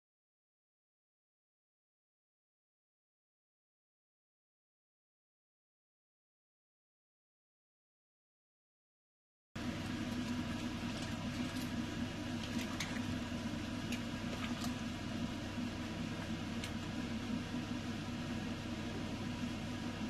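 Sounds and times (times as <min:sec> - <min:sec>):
mechanical hum: 0:09.6 - 0:20.0.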